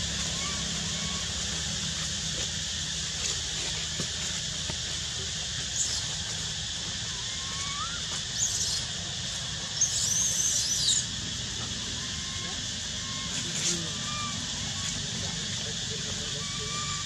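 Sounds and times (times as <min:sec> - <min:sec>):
steady outdoor hiss: 0:00.0 - 0:17.0
high-pitched animal squeaks: 0:07.2 - 0:08.8, 0:16.3 - 0:17.0.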